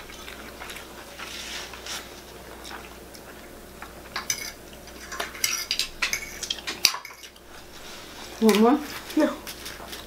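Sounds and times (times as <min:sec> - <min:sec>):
forks clinking on plates: 0:04.2 - 0:07.3.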